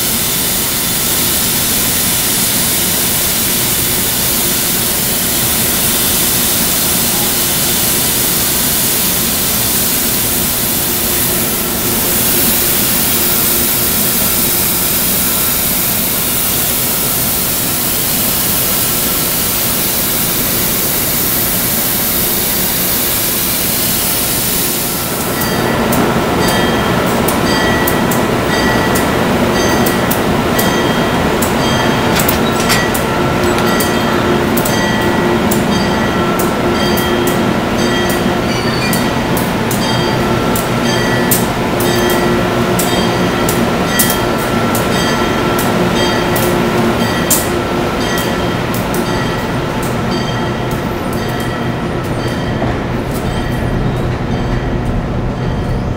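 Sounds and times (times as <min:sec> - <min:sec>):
electric locomotive rushing noise: 0:00.0 - 0:55.9.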